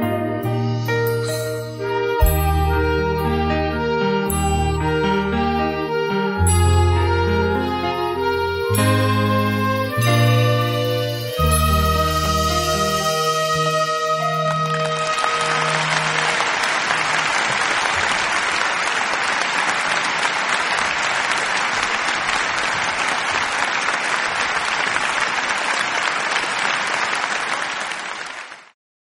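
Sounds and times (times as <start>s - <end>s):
music: 0.0s - 17.9s
audience applauding: 14.2s - 28.8s.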